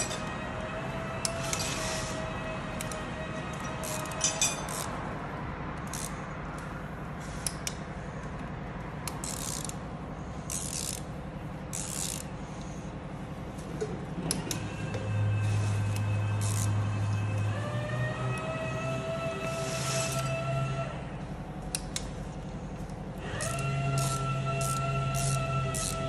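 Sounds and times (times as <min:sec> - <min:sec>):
steady low hum: 0:00.0 - 0:26.0
ratchet wrench clicking: 0:03.8 - 0:05.0, 0:05.8 - 0:06.6, 0:09.0 - 0:09.8, 0:10.4 - 0:11.1, 0:11.7 - 0:12.3, 0:16.4 - 0:16.7, 0:23.4 - 0:26.0.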